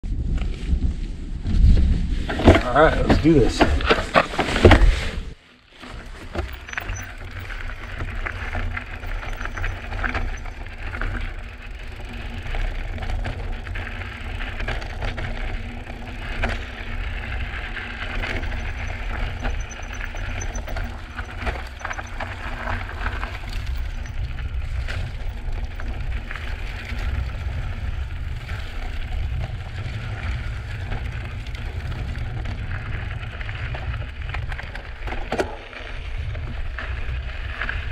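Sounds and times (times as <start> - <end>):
bike tyres rolling over gravel: 0.1 - 37.9
rattles and clicks: 5.8 - 29.4.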